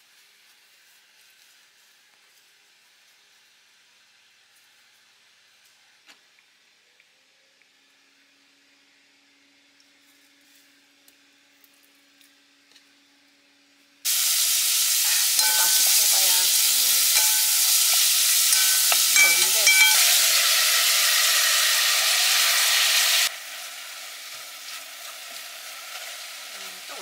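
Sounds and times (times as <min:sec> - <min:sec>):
meat sizzling in hot oil: 0:14.1 - 0:27.0.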